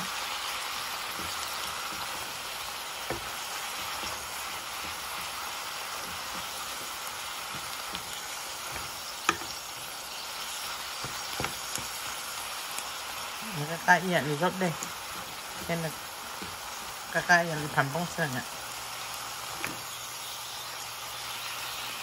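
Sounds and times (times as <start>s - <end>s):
greens sizzling in oil: 0.0s - 22.0s
wooden spatula tapping pan: 1.0s - 9.8s, 10.9s - 12.1s.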